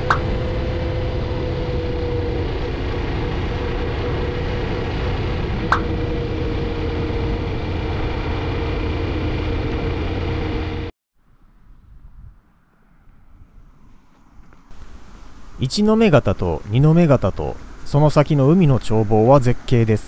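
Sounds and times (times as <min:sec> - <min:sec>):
held mid-pitched tones: 0:00.0 - 0:00.6
vehicle engine and road noise: 0:00.0 - 0:20.0.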